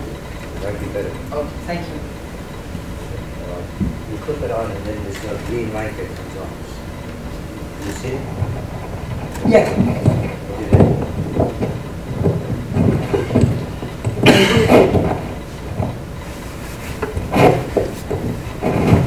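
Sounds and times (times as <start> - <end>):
microphone handling rustles: 7.8 - 19.0
microphone scrape: 7.8 - 19.0.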